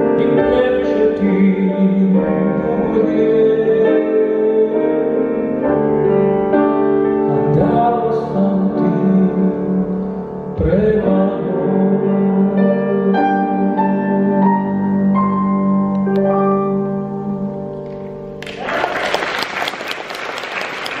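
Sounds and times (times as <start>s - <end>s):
man singing into a microphone: 0.0s - 5.6s, 7.1s - 15.5s
grand piano accompaniment: 0.0s - 21.0s
audience applause: 18.4s - 21.0s.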